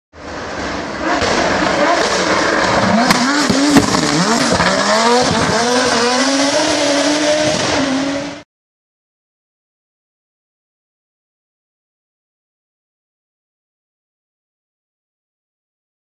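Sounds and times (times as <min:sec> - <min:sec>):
race car engine revving: 0:00.2 - 0:08.4.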